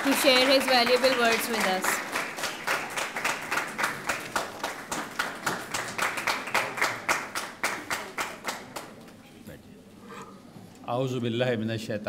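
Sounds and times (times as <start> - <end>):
audience applause: 0.0 - 9.1.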